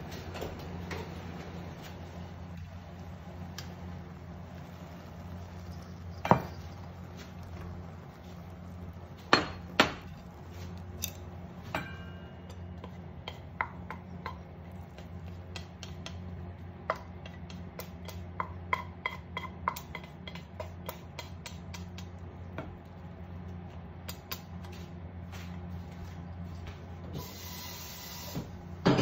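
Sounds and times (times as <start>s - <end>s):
low hum: 0.0s - 18.5s
plate and pan knocking on cooktop: 6.2s - 6.7s
chopsticks tapping pan and plate: 11.0s - 22.2s.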